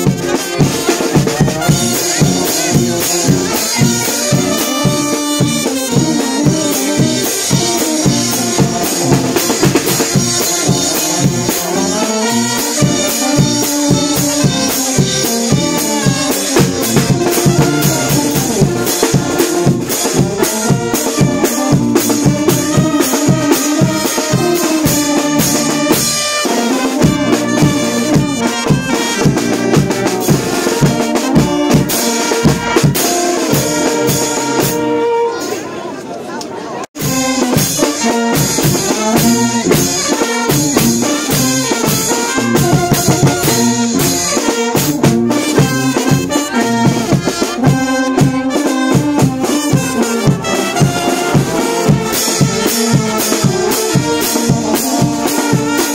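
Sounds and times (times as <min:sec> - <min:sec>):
bass drum: 0:00.0 - 0:26.3, 0:26.9 - 0:33.8, 0:37.0 - 0:55.9
snare drum: 0:00.0 - 0:35.0, 0:37.0 - 0:55.9
cymbals: 0:00.0 - 0:35.7, 0:37.0 - 0:55.9
saxophones: 0:00.0 - 0:35.9, 0:37.0 - 0:55.9
trumpets: 0:00.0 - 0:55.9
sousaphone: 0:13.2 - 0:22.1.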